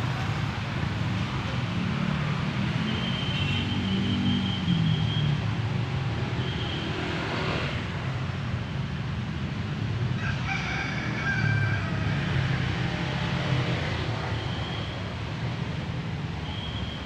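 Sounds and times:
rooster crowing: 0:10.2 - 0:12.6.

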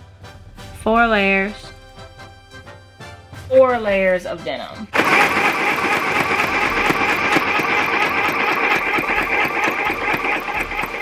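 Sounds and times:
sewing machine clattering: 0:05.0 - 0:11.0.

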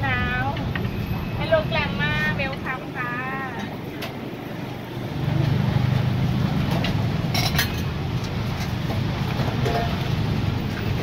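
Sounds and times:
metal utensils clinking on griddle: 0:06.7 - 0:10.2.

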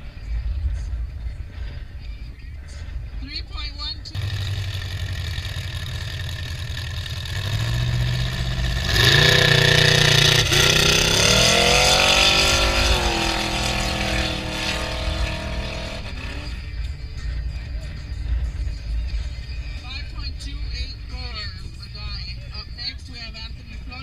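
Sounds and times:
truck engine revving: 0:04.1 - 0:16.9.

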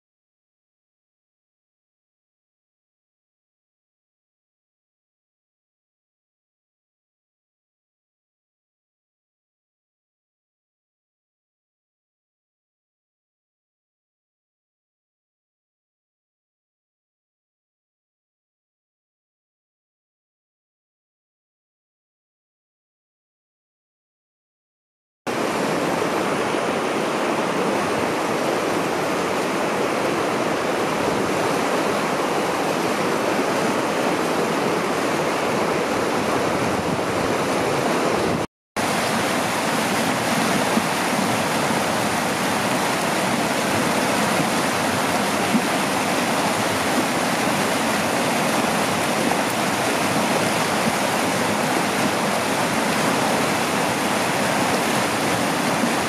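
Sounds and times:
river running over rocks: 0:25.3 - 0:56.0.

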